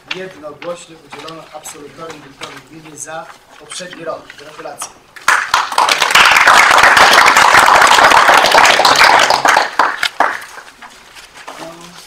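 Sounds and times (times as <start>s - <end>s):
people clapping: 5.2s - 10.9s.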